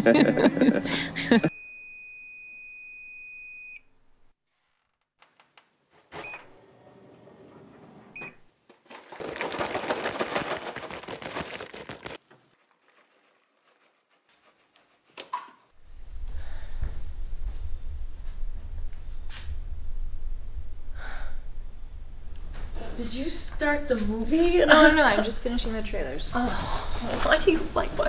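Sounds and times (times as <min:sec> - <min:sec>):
microwave beeps: 0:01.5 - 0:03.9, 0:06.2 - 0:06.5, 0:08.2 - 0:08.4
popcorn popping: 0:08.7 - 0:12.3
low hum: 0:15.8 - 0:23.8.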